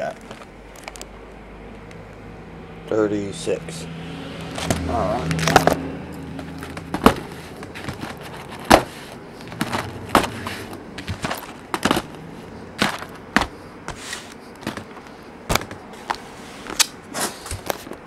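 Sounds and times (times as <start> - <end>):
cardboard boxes set on table: 4.5 - 18.0.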